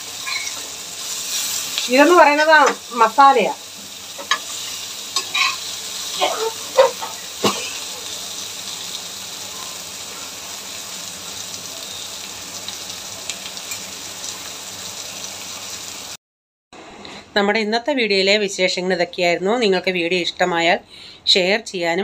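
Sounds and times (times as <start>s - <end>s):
fish sizzling in oil: 0.0s - 16.2s.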